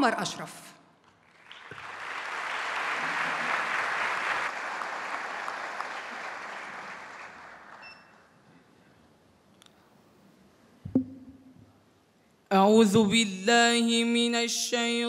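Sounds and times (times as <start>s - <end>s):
audience applauding: 1.2s - 7.9s.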